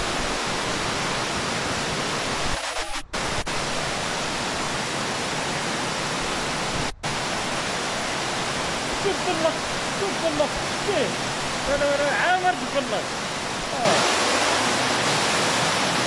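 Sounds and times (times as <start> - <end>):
water rushing down steps: 6.6 - 16.0.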